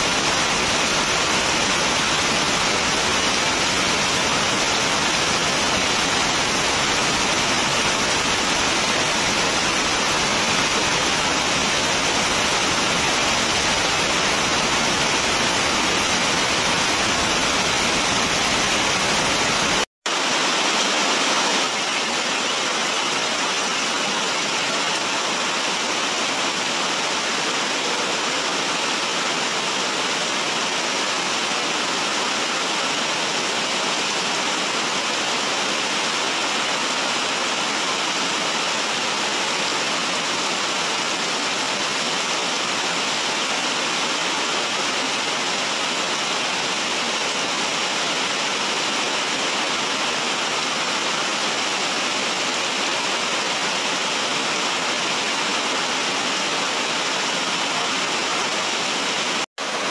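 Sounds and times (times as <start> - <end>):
heavy rain hissing: 0.0 - 59.9.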